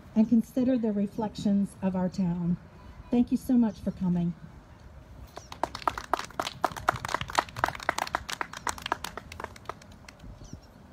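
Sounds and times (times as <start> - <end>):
people clapping: 5.4 - 10.3.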